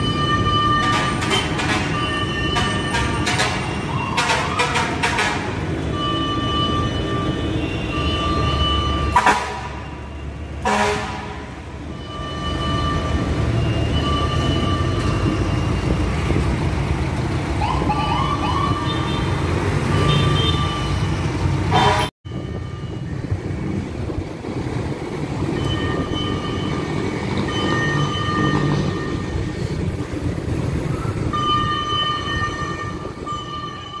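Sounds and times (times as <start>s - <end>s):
traffic engines rumbling: 0.0s - 34.0s
horn blasts: 9.0s - 11.6s, 21.7s - 22.1s
siren whoops: 17.6s - 19.1s.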